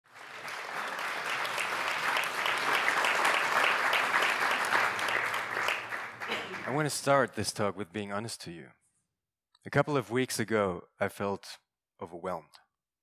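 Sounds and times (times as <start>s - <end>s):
audience applauding: 0.1s - 7.1s.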